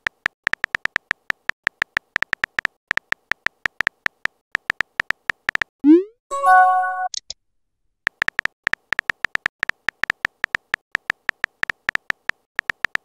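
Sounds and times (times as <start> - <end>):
short electronic chime: 6.3 - 7.1.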